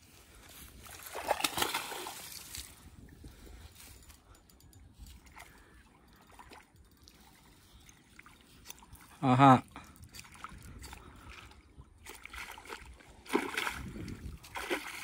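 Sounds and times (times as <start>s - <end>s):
faint water sounds: 0.0s - 15.0s
water splash: 1.0s - 2.4s, 12.1s - 15.0s.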